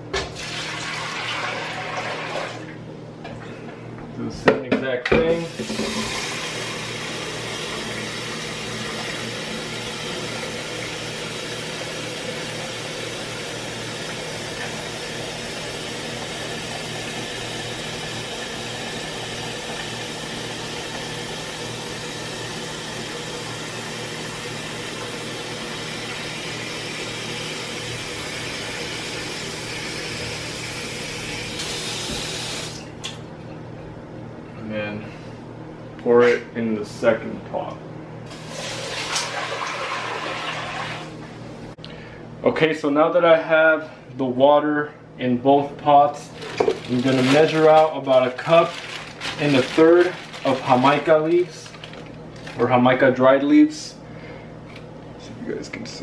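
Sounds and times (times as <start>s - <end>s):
water running into plastic pitcher: 0.2s - 2.7s, 5.5s - 21.6s, 38.3s - 41.1s, 46.4s - 52.6s.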